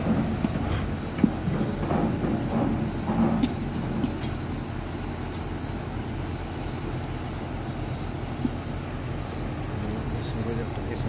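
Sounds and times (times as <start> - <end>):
diesel engine rumbling: 0.0 - 11.0.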